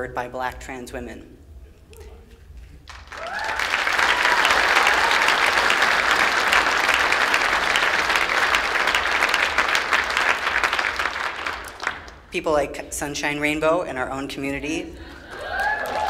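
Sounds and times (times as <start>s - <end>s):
audience applauding: 2.8s - 12.3s, 15.2s - 16.0s
people whooping: 3.1s - 7.9s, 15.2s - 16.0s.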